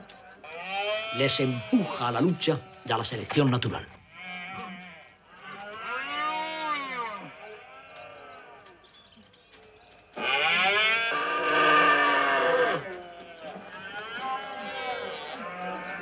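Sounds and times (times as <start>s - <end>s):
deer stags roaring: 10.2s - 13.0s.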